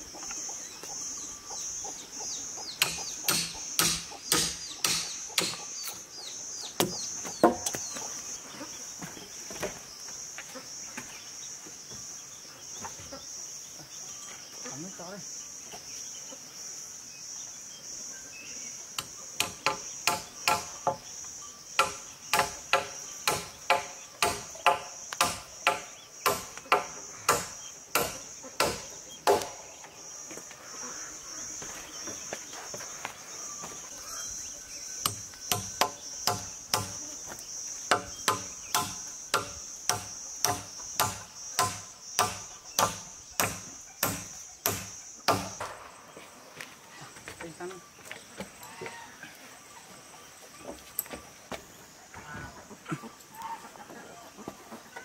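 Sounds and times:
high insect drone: 0.0 - 53.6
hammer driving nails into wood: 2.8 - 5.6, 21.8 - 29.6, 37.9 - 45.8.

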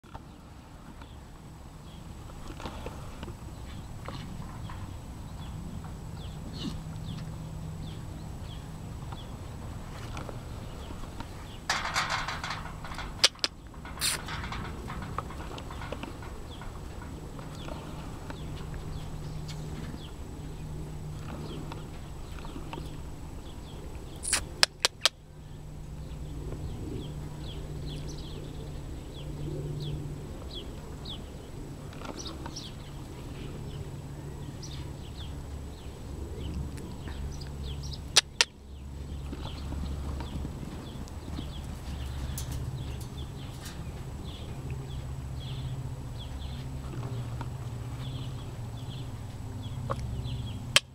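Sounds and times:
horses moving on soft dirt: 0.0 - 24.2, 26.1 - 38.0, 38.6 - 50.6
small birds chirping: 0.0 - 50.9
steady low rumble: 0.0 - 50.9
loud sharp clicks: 11.8 - 14.4, 24.2 - 25.2.

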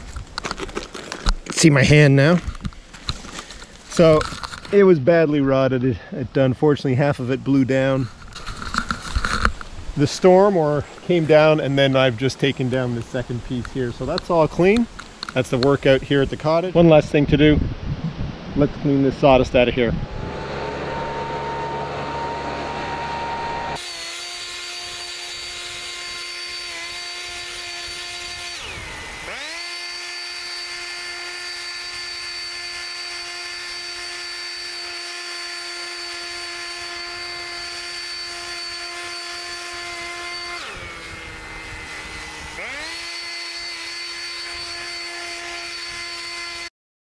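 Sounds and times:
leaf blower whining: 0.0 - 4.9, 20.0 - 46.7.

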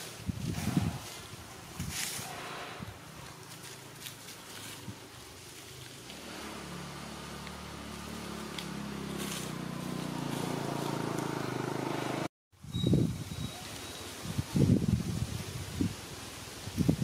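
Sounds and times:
vehicle engine droning: 5.6 - 12.3.

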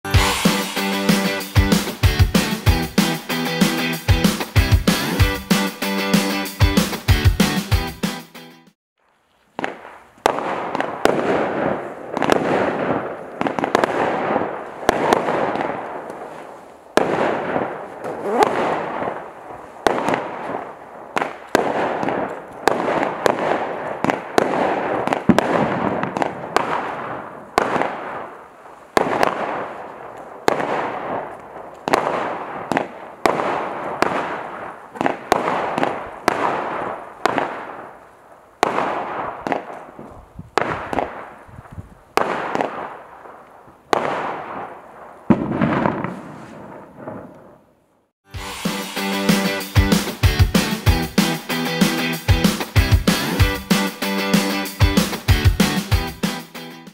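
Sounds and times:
firework cake shots and bursts: 9.6 - 38.0, 38.6 - 47.2.

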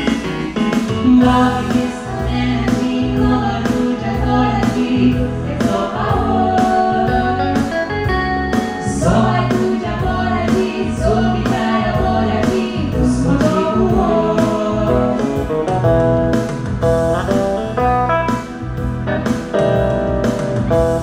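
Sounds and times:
drums: 0.0 - 21.0
keyboard: 0.0 - 21.0
man and woman singing duet: 0.9 - 7.8, 8.7 - 15.5.

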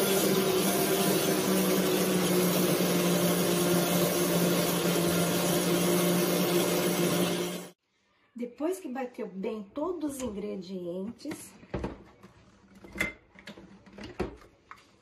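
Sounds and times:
electric blender running: 0.0 - 7.8.

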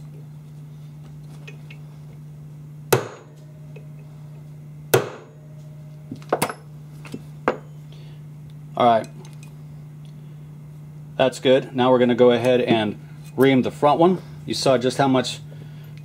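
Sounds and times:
steady low hum: 0.0 - 16.0
hammer tapping steel punch: 2.9 - 4.0, 5.0 - 5.4.

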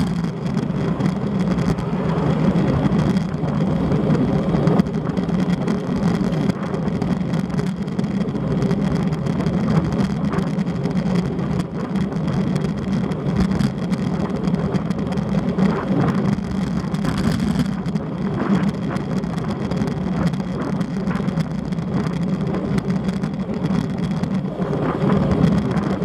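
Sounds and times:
tyres humming on road: 0.0 - 26.0
wind rushing over microphone: 0.0 - 26.0.

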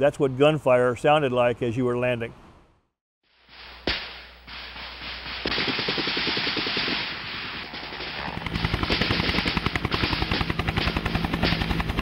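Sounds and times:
helicopter rotor thudding: 3.8 - 12.0
machine-gun fire: 3.9 - 12.0.

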